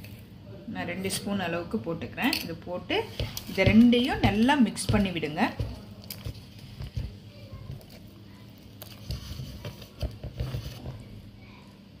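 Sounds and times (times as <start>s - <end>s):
hand mixing wet batter: 3.0s - 11.2s.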